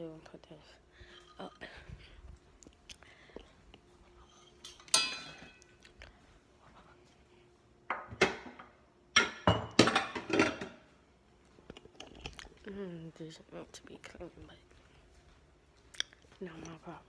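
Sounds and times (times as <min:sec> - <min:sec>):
dishware clinking: 0:04.6 - 0:05.6
dishware knocking and clattering: 0:04.8 - 0:05.6, 0:07.9 - 0:10.8.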